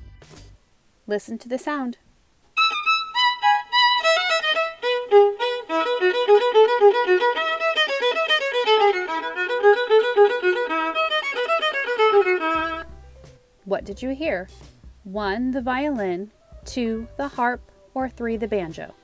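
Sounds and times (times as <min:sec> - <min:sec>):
violin playing a quick melody: 0:02.6 - 0:13.0.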